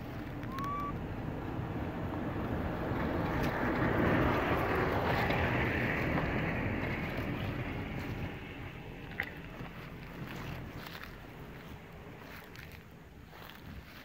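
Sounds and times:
short rising squeak: 0.4s - 1.0s.

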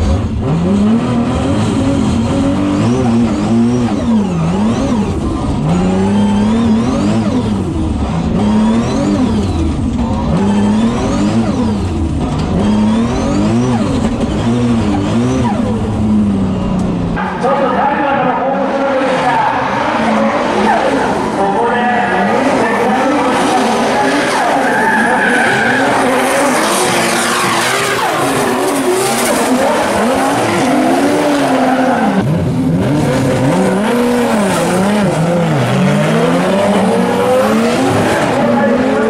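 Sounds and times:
car engines revving: 0.0s - 39.0s
tyres squealing: 22.1s - 32.2s.

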